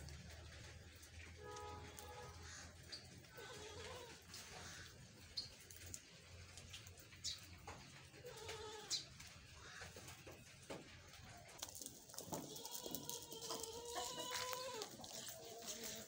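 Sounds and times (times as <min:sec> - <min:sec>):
hens chirping softly: 0:02.3 - 0:16.0.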